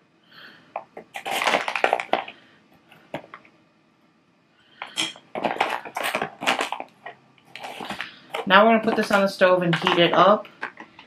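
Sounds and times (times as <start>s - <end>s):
plastic bag crinkling: 1.0s - 2.5s, 4.8s - 11.0s.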